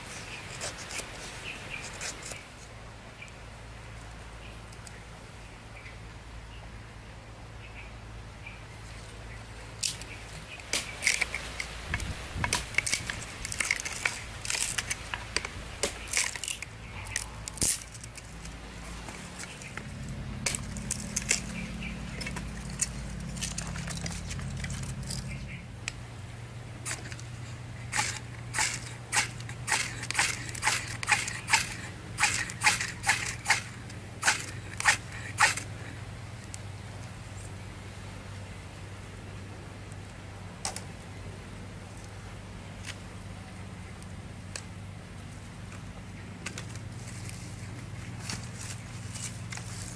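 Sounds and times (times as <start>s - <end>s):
knife scraping wooden stick: 0.0s - 2.7s, 26.8s - 35.7s.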